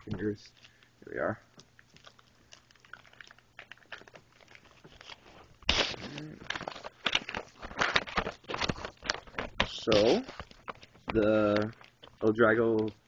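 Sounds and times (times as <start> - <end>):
cardboard crackling and tearing: 3.6 - 13.0.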